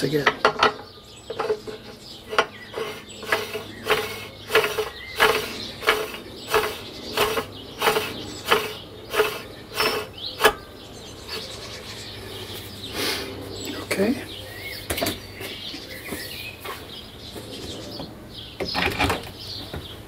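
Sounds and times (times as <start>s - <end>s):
metal thread scraping: 1.3s - 10.6s.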